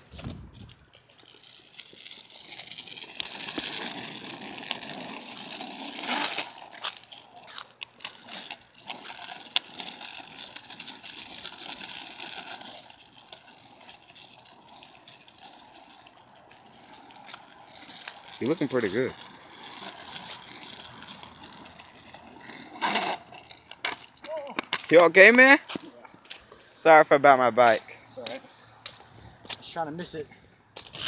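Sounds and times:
skateboard clicks and knocks: 0:00.0 - 0:26.2, 0:30.8 - 0:31.0
skateboard wheels rolling on asphalt: 0:00.0 - 0:31.0.

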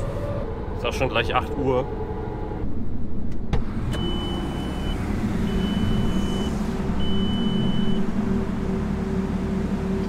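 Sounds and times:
high warning beeps: 0:04.0 - 0:08.0
car engine idling: 0:05.5 - 0:10.0.

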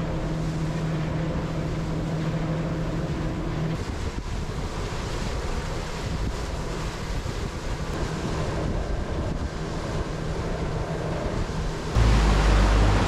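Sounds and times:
small waves washing against boat: 0:00.0 - 0:13.0
wind buffeting microphone: 0:02.9 - 0:13.0.

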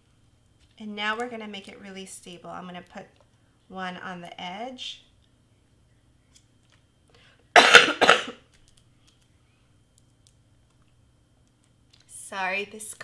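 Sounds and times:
woman coughing: 0:07.6 - 0:08.4.

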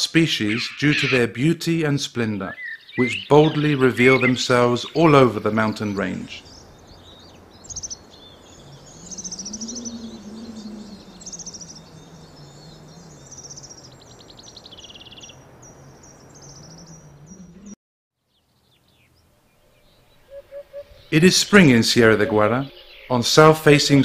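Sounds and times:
songbirds singing: 0:00.0 - 0:24.0
low wavering hum: 0:06.5 - 0:17.8.

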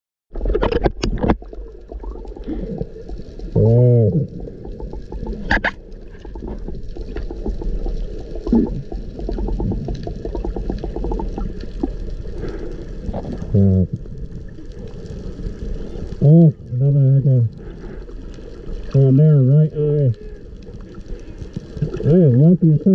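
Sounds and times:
underwater low rumble: 0:00.3 - 0:22.9
moaning tones: 0:02.2 - 0:05.6.

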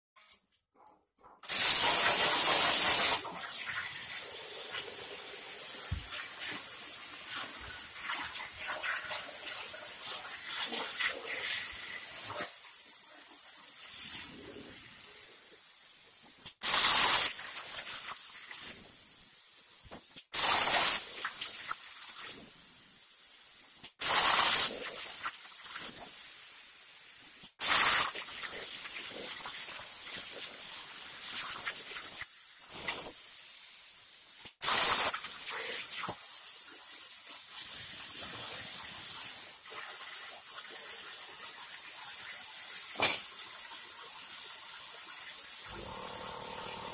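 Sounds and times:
loud blasts of hiss: 0:01.5 - 0:13.0, 0:13.8 - 0:33.6, 0:34.3 - 0:36.6, 0:43.0 - 0:43.3, 0:45.7 - 0:46.9
plasma cutter hissing: 0:01.5 - 0:41.5, 0:42.7 - 0:43.4, 0:45.5 - 0:46.9.

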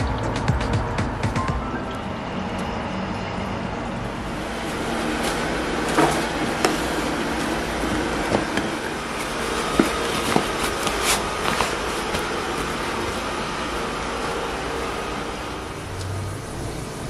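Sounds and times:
steady mechanical hum: 0:00.0 - 0:17.0
plastic containers knocking and clicking: 0:08.0 - 0:12.3.

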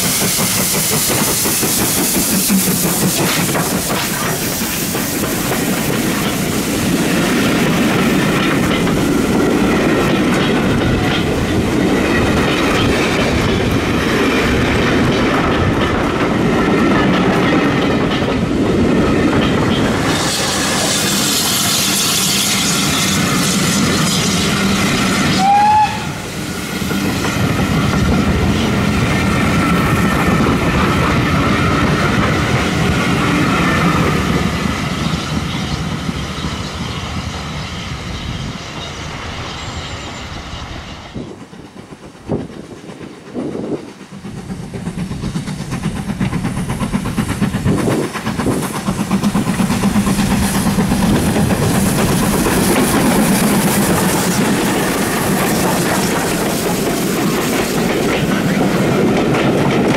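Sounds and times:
train wheels clicking over rail joints: 0:00.0 - 0:37.6, 0:38.5 - 0:59.9
steam locomotive passing: 0:00.0 - 0:59.9
brief rising squeal: 0:37.7 - 0:41.2.

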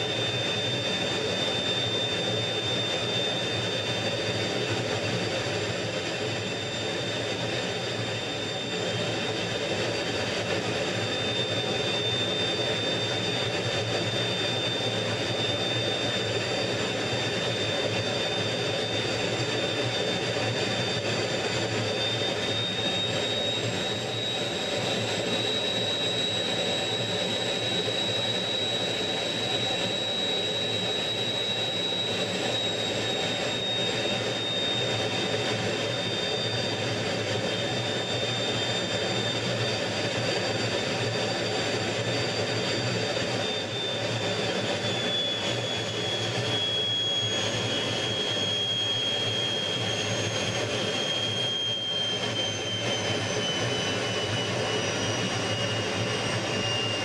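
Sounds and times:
jet engine whine: 0:00.0 - 0:57.0.

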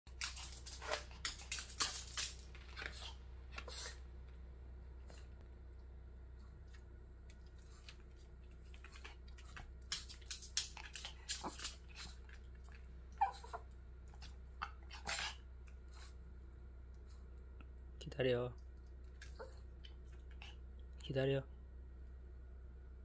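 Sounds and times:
dog whining: 0:13.1 - 0:13.7.

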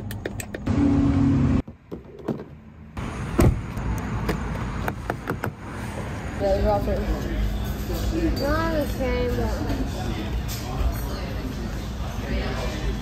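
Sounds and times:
car door thud: 0:03.4 - 0:03.7.

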